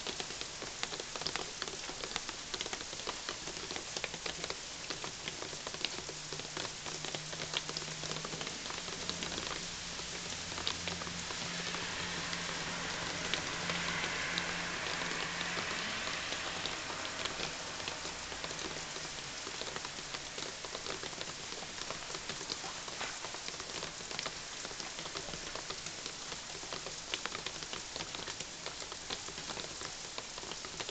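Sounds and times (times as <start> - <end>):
rain falling on trees: 0.0 - 30.9
raindrops ticking close by: 0.0 - 30.9
low hum: 10.2 - 18.5.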